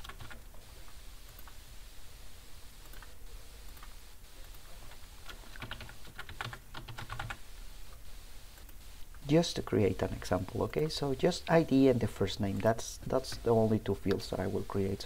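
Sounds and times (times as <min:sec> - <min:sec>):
keyboard typing: 0:00.0 - 0:01.6, 0:02.8 - 0:07.4.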